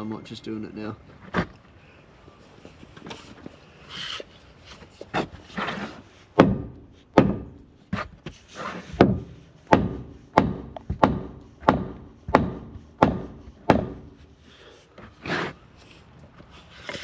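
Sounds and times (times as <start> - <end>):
hammer blows on timber: 6.3 - 8.1, 8.9 - 14.3.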